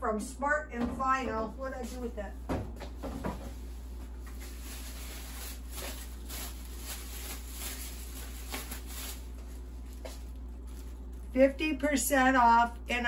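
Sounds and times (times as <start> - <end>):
steady low hum: 0.0 - 13.0
rustling and handling noises: 2.8 - 11.4.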